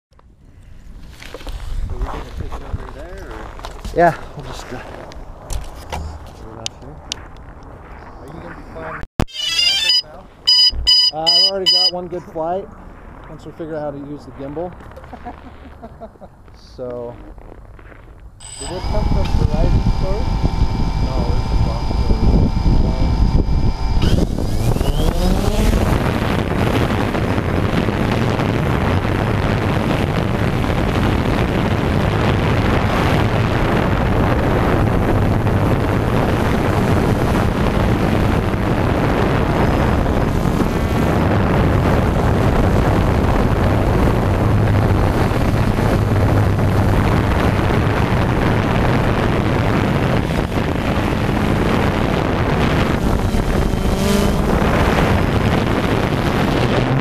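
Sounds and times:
drone motors buzzing: 9.3s - 11.9s, 18.4s - 28.2s, 32.0s - 57.0s.

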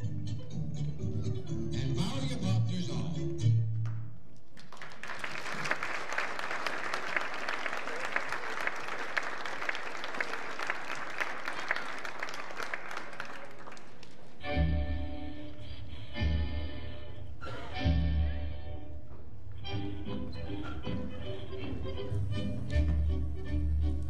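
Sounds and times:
music: 0.0s - 4.4s, 14.4s - 24.0s
audience clapping: 4.4s - 14.4s.

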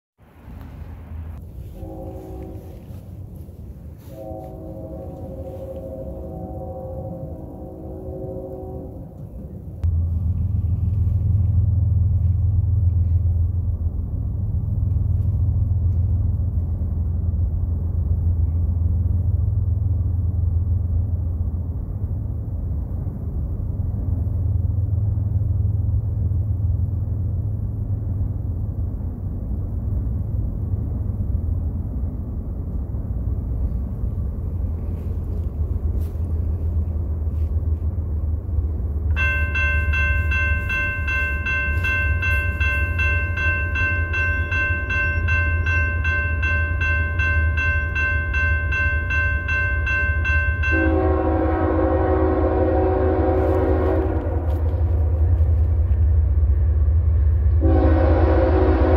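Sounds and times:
low steady rumble: 0.2s - 58.9s
locomotive horn: 1.4s - 9.9s, 50.6s - 55.2s, 57.5s - 58.9s
crossing warning bell ringing: 1.6s - 3.2s, 4.0s - 9.8s, 39.0s - 55.2s, 57.6s - 58.9s.

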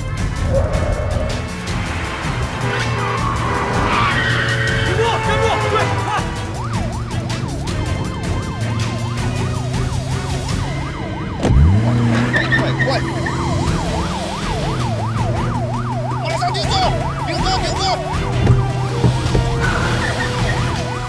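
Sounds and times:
police siren yelping: 3.8s - 21.0s
car engine running: 5.9s - 21.0s.

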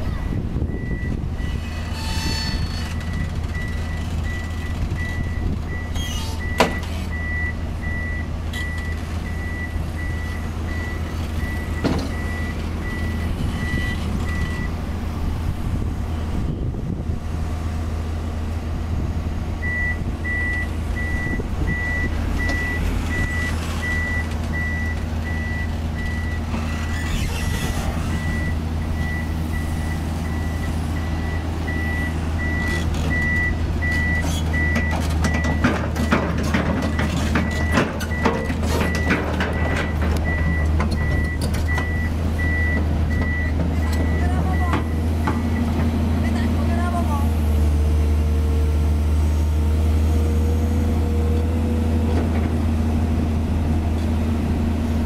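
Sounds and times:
excavator diesel engine running: 0.0s - 55.0s
travel alarm beeping: 3.0s - 14.7s, 19.6s - 26.5s, 37.5s - 45.7s.

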